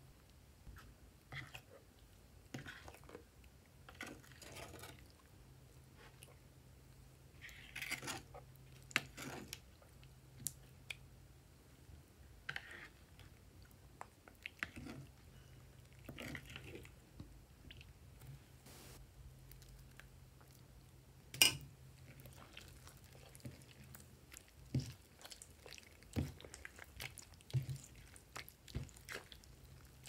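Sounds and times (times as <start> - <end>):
slime squishing: 22.0 - 30.0.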